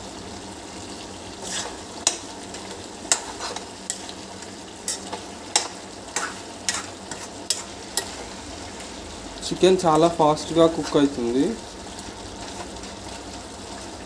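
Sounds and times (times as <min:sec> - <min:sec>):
chicken sizzling: 0:00.0 - 0:14.0
metal spatula scraping pan: 0:01.4 - 0:04.1, 0:04.8 - 0:08.4.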